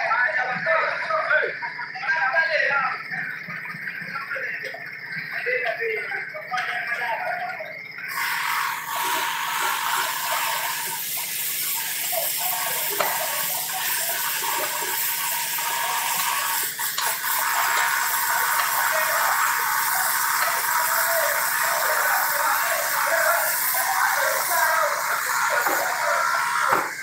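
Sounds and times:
faint voices: 0.0 - 27.0
steady hissing noise: 0.0 - 27.0.

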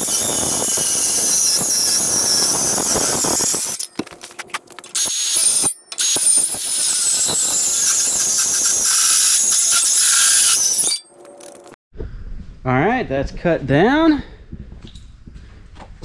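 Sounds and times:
power tool screeching on steel: 0.0 - 3.9, 5.0 - 11.6.

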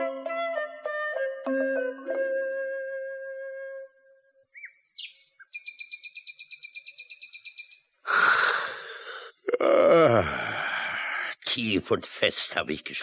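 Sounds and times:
bird chirps and trill: 4.4 - 8.0.

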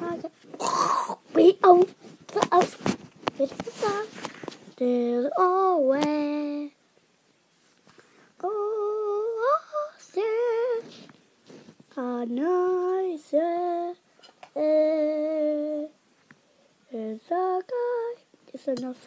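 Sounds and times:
boy humming: 0.0 - 1.3.

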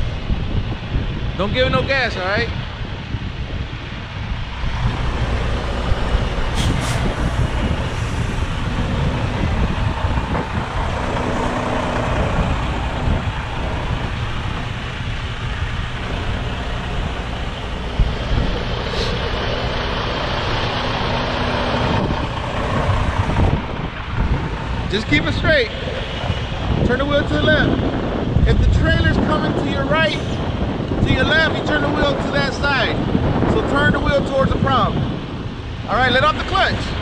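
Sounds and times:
diesel truck engine idling: 4.1 - 28.5.

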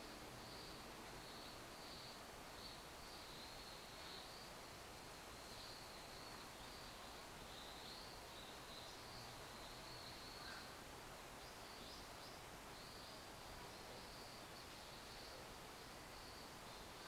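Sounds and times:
steady low hiss: 0.0 - 17.0.

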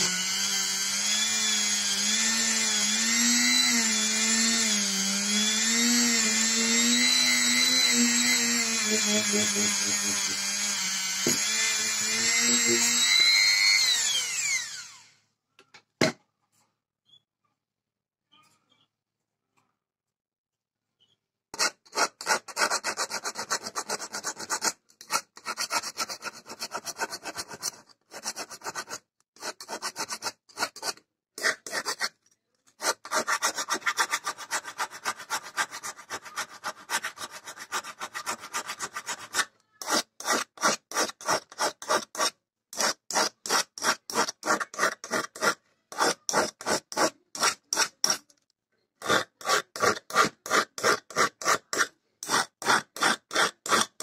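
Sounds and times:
hand file stroking on steel: 21.6 - 32.2, 32.8 - 48.4, 49.0 - 54.0.

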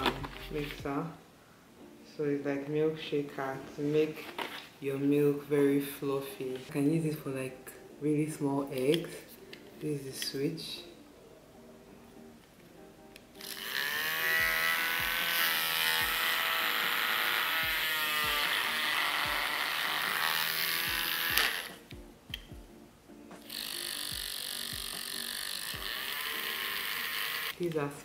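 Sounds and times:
milk frother buzzing: 13.4 - 21.8, 23.4 - 27.6.

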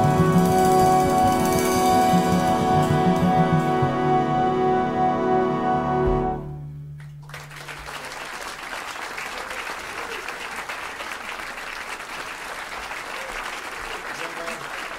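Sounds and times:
audience applause: 7.0 - 14.9.

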